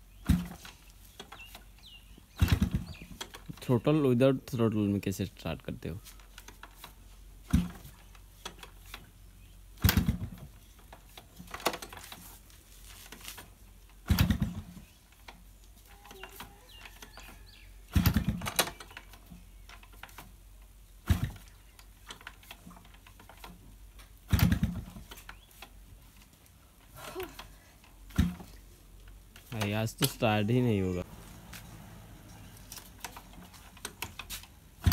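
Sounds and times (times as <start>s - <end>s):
motorcycle kick-start clatter: 2.3s - 3.8s, 7.5s - 9.1s, 9.8s - 12.2s, 14.0s - 15.4s, 16.0s - 20.3s, 21.0s - 23.6s, 24.2s - 25.5s, 28.1s - 28.6s.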